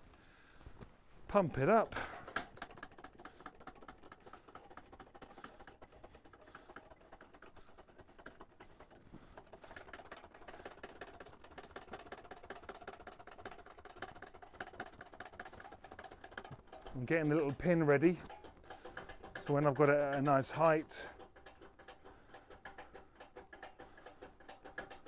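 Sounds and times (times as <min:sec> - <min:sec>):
hydraulic jack clicking: 0:18.2 - 0:25.0.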